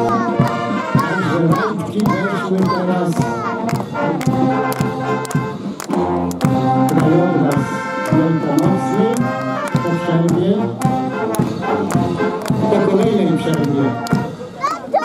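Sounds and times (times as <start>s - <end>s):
voices: 0.0s - 4.7s
brass band playing a march: 0.0s - 14.6s
steady drumbeat: 0.0s - 14.7s.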